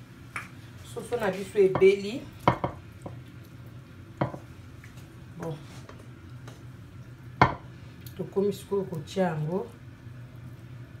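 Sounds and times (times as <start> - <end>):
taps on ceramic plate: 4.2 - 4.4, 7.4 - 7.6.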